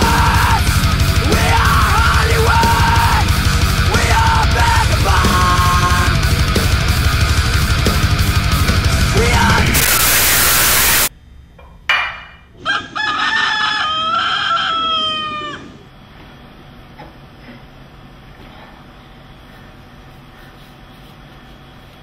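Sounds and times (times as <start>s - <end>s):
heavy metal music: 0.0s - 11.1s
burst of hiss: 9.5s - 11.1s
rooster crowing: 12.6s - 15.9s.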